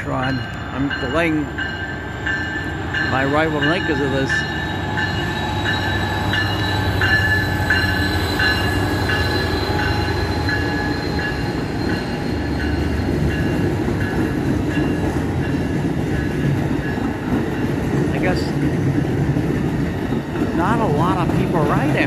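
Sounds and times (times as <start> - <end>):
bell ringing: 0.0 - 15.1
diesel locomotive passing: 0.0 - 22.0
train wheels rumbling on rail: 0.0 - 22.0.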